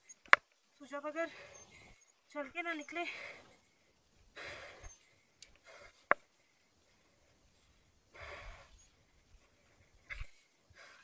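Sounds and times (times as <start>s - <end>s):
person breathing heavily: 1.2s - 2.1s, 3.0s - 11.0s.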